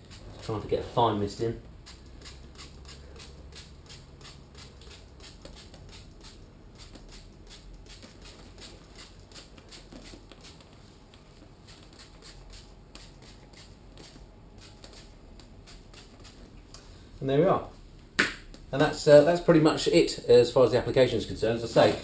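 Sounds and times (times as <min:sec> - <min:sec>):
spray bottle hissing squirts: 0:01.8 - 0:10.7, 0:11.6 - 0:16.4.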